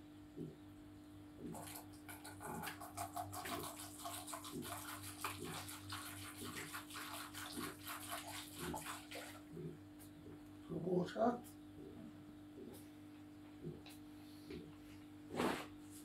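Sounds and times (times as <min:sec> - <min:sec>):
water pouring from plastic bottle: 0:01.6 - 0:09.4.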